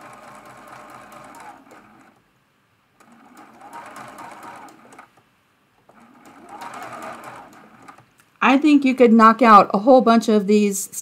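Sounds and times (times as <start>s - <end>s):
sewing machine stitching: 0.0s - 2.2s, 3.0s - 5.2s, 5.9s - 8.1s.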